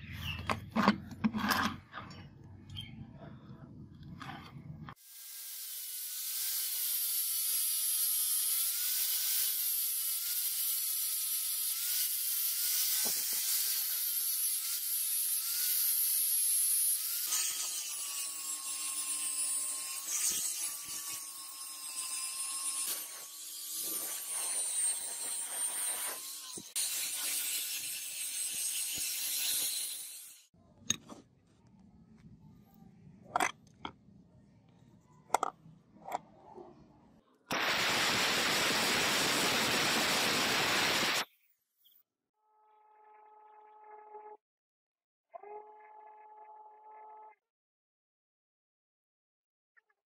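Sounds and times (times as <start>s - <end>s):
angle grinder grinding steel: 5.2s - 30.5s.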